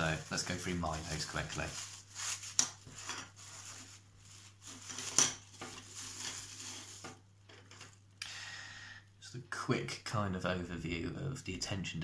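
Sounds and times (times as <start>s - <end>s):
plastic wrap crinkling: 0.0s - 8.1s.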